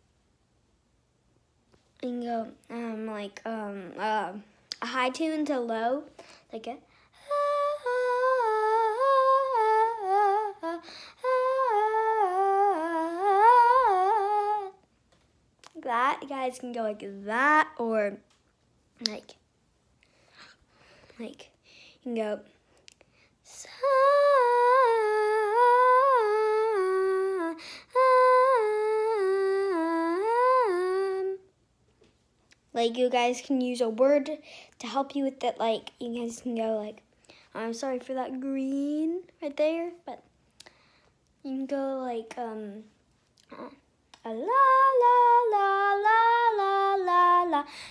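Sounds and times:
breath: 6.2s - 7.2s, 10.8s - 11.2s, 20.0s - 22.0s, 27.6s - 27.9s, 34.4s - 34.8s, 37.2s - 37.6s, 40.6s - 41.2s, 47.7s - 47.9s.

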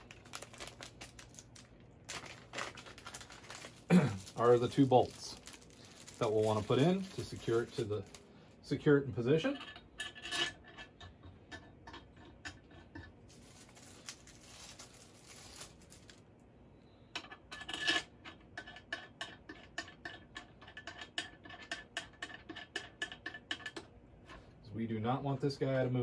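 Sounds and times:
plastic bag rustle: 0.0s - 8.3s, 13.3s - 16.2s.

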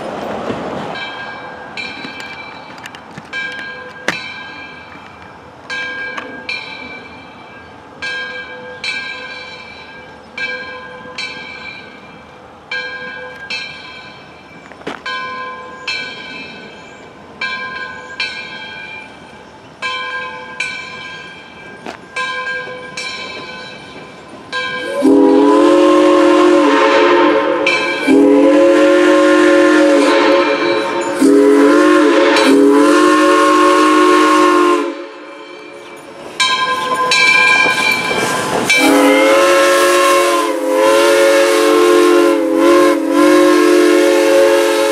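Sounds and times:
locomotive bell ringing: 0.9s - 40.6s
steam whistle blasts: 24.8s - 35.7s, 38.7s - 44.9s.

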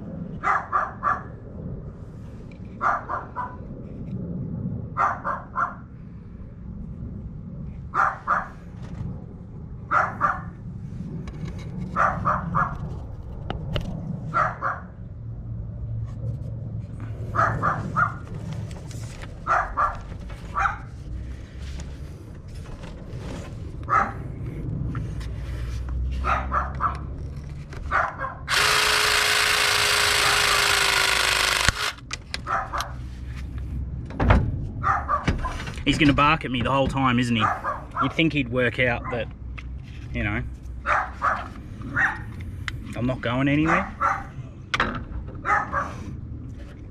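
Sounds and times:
dog barking: 0.4s - 1.3s, 2.8s - 3.6s, 5.0s - 5.8s, 7.9s - 8.6s, 9.9s - 10.6s, 12.0s - 12.8s, 14.3s - 14.9s, 17.3s - 18.2s, 19.4s - 20.9s, 23.9s - 24.2s, 26.2s - 27.0s, 27.9s - 28.5s, 32.4s - 33.0s, 34.8s - 35.6s, 37.4s - 38.2s, 40.8s - 42.3s, 43.6s - 44.4s, 45.4s - 46.0s
press tool whining: 28.5s - 32.1s.

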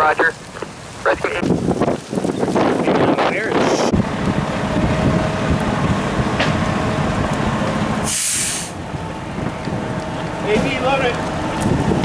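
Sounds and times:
diesel engine and pump running: 3.5s - 12.0s
loud hiss: 8.0s - 8.8s.

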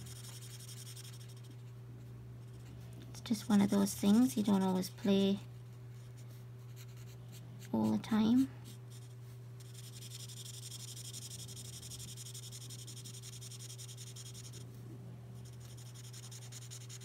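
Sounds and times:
marker scratching on paper: 0.0s - 1.7s, 6.2s - 14.7s, 15.4s - 17.0s
steady low hum: 0.0s - 17.0s.

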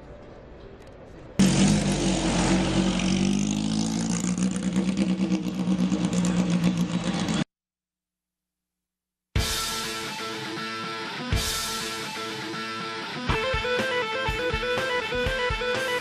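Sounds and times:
racing car engine running: 1.4s - 7.4s.

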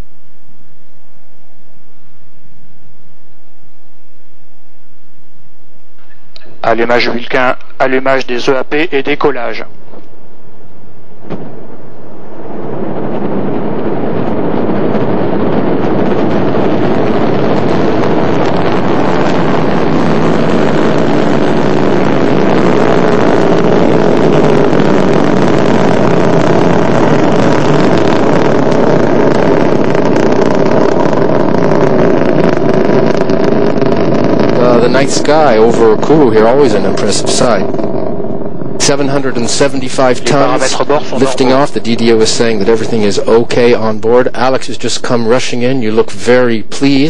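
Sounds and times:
rocket engines roaring: 6.0s - 47.0s.

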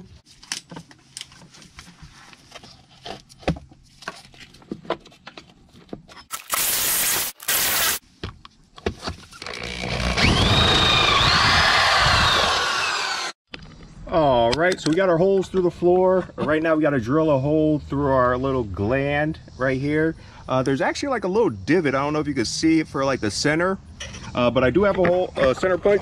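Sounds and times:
cordless drill cutting with hole saw: 6.3s - 8.0s, 9.4s - 13.4s.

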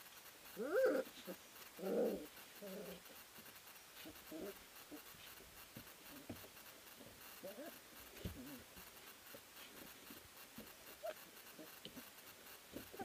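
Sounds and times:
rustling of bedding: 0.8s - 13.0s.

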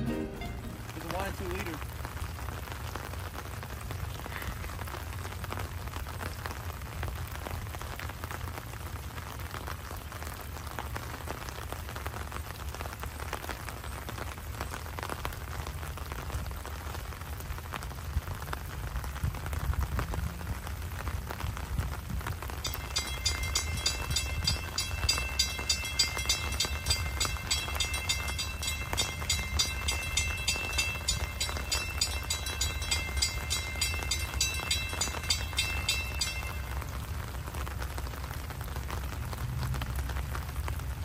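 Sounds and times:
rain pattering: 0.0s - 41.0s
steady low rumble: 22.6s - 37.6s.

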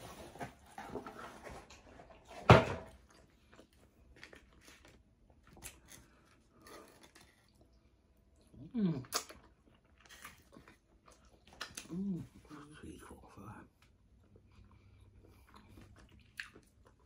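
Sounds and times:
person chewing and lip-smacking: 8.4s - 12.4s, 14.2s - 17.0s.

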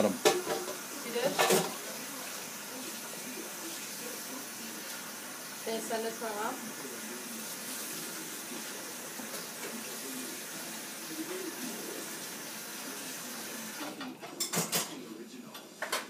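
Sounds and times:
tap water running into sink: 0.0s - 6.0s, 6.6s - 14.0s.

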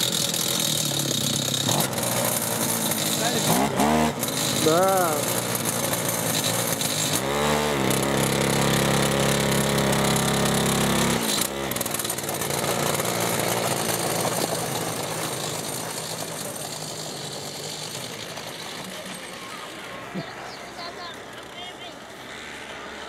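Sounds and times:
small two-stroke engine high revs: 0.0s - 23.0s.

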